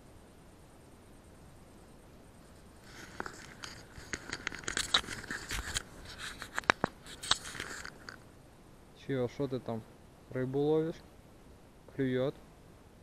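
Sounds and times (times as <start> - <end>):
camera rustling through grass: 2.4 - 8.2.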